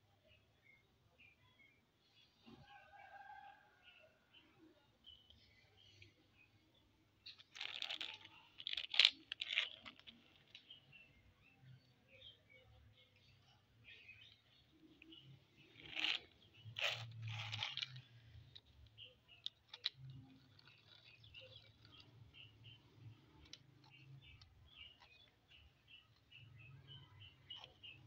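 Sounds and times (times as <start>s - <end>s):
plastic cars clicking together: 7.2s - 10.8s, 15.6s - 26.4s
toy cars scraping on concrete: 15.5s - 19.0s.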